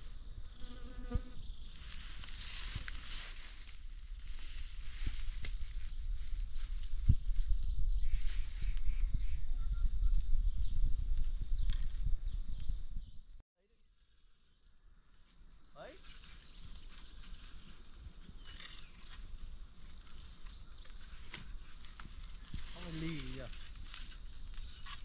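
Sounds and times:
insects shrilling: 15.7s - 25.0s.

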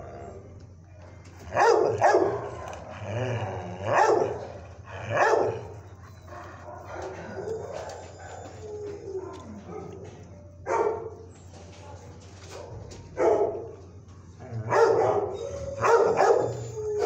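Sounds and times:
dog barking: 1.4s - 2.9s, 3.8s - 4.5s, 5.1s - 5.7s, 6.3s - 8.6s, 9.2s - 13.8s, 14.7s - 17.0s.

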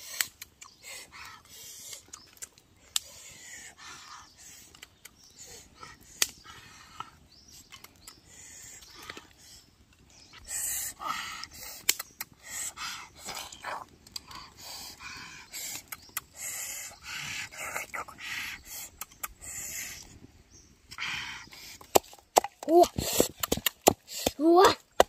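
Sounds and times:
breathy hissing puffs: 0.0s - 22.0s, 22.8s - 24.6s
dry twigs clicking and snapping: 1.9s - 3.1s, 6.0s - 8.2s, 11.4s - 12.4s, 13.5s - 14.6s.

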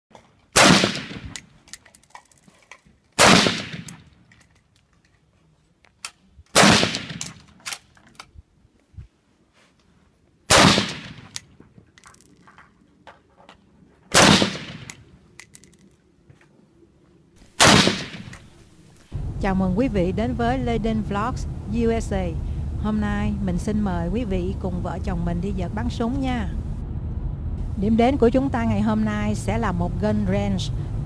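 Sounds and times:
rifle shots echoing: 0.6s - 1.4s, 3.2s - 4.1s, 6.5s - 7.5s, 10.5s - 11.4s, 14.1s - 15.1s, 17.6s - 18.6s.

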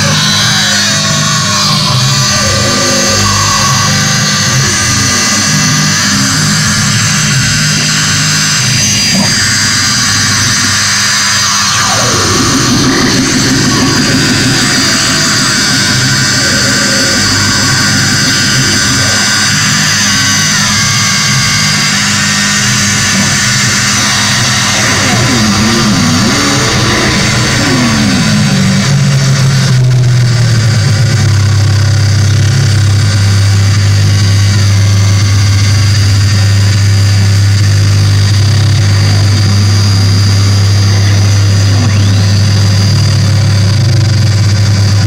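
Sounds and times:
swooping pitch glides: 0.0s - 7.9s, 8.5s - 29.8s
electronic drone: 0.0s - 45.0s
heavy low hum: 0.0s - 45.0s.

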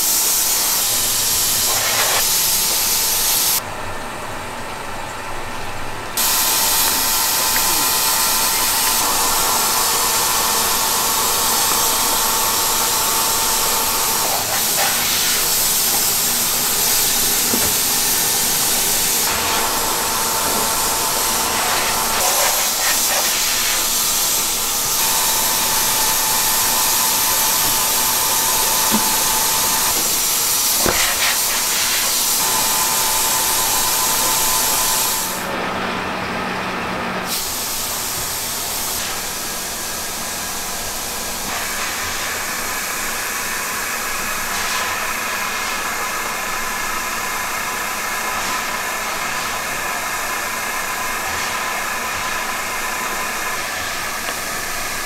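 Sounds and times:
machinery hissing: 6.2s - 35.5s
machine whine: 6.2s - 35.8s.

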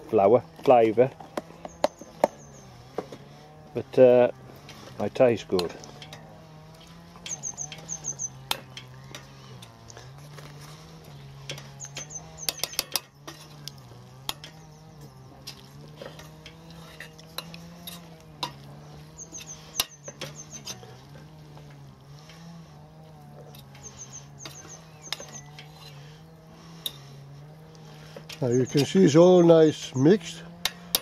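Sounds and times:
low engine drone: 0.0s - 31.0s.

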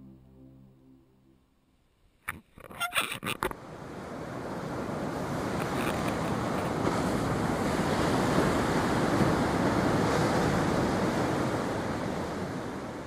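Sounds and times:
ocean surf breaking: 3.5s - 13.0s
wind buffeting microphone: 3.6s - 13.0s.

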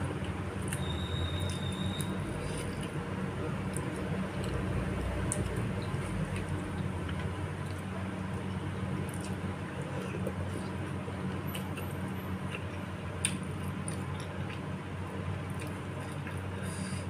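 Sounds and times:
steady low hum: 0.0s - 17.0s
wet chewing and mouth clicks: 3.6s - 7.9s, 9.0s - 14.8s, 15.4s - 16.6s.

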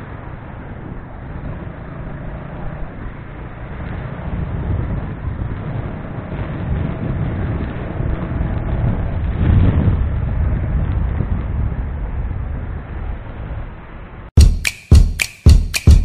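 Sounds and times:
traffic noise: 0.0s - 9.3s
wind rushing over microphone: 0.0s - 14.3s.

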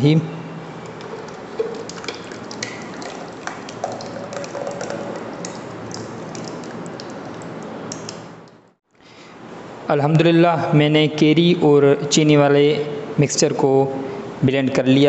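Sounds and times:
small clicks and plops: 0.8s - 8.6s
syrup pouring and splashing: 0.9s - 8.5s.

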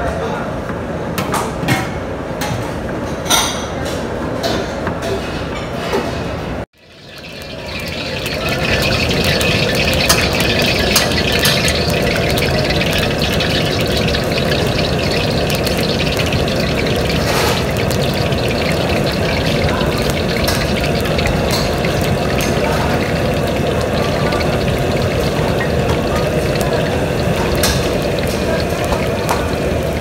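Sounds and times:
food deep-frying in oil: 6.8s - 30.0s.

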